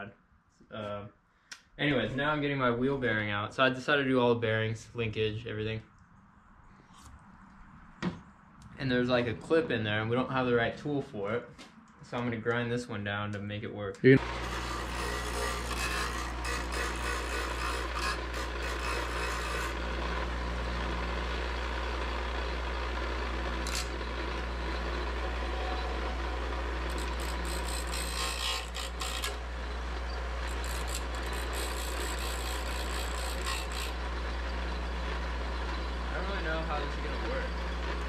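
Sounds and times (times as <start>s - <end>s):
metal grinding on wheel: 14.2s - 20.4s, 23.5s - 25.2s, 25.8s - 38.0s
bench grinder humming: 14.2s - 38.0s.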